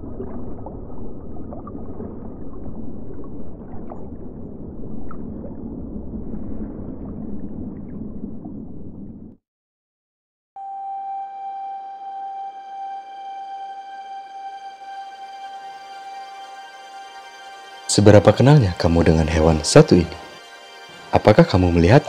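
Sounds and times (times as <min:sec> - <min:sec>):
deep underwater rumble: 0:00.0 - 0:09.4.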